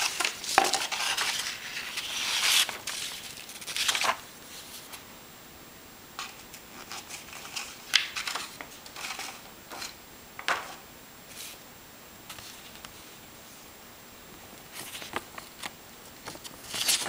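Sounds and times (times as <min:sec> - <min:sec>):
paper rustling: 0:00.0 - 0:05.0, 0:06.2 - 0:11.6, 0:14.7 - 0:17.0.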